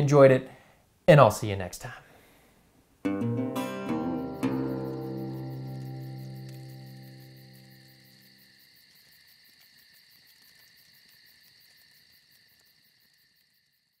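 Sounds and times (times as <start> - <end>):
guitar chord: 3.0 - 8.0
crickets chirping: 3.4 - 14.0.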